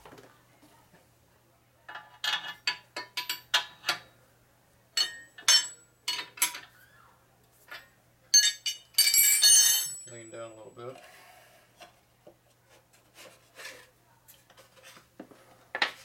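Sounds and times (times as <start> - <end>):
metal wrenches clinking: 5.0 - 6.7, 7.7 - 10.3.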